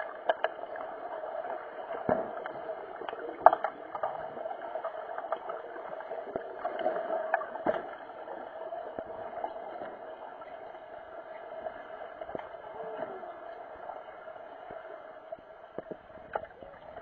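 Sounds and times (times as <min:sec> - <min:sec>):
muffled underwater hum: 0:00.0 - 0:17.0
sharp underwater clicks and knocks: 0:00.2 - 0:00.9, 0:01.9 - 0:05.6, 0:06.3 - 0:08.2.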